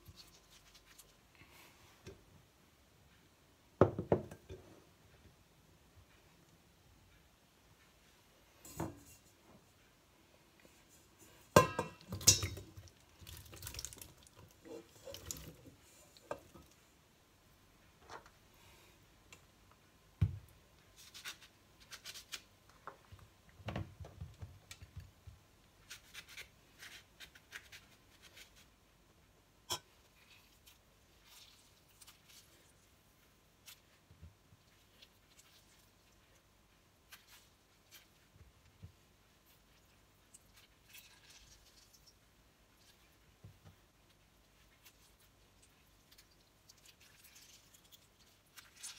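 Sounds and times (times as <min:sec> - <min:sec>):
pots and bowls clinking: 0:11.5 - 0:12.8.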